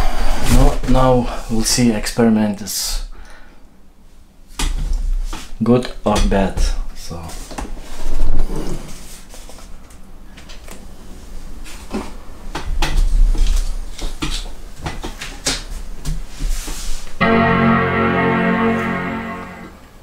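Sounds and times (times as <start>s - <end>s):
computer startup chime: 17.2s - 20.0s.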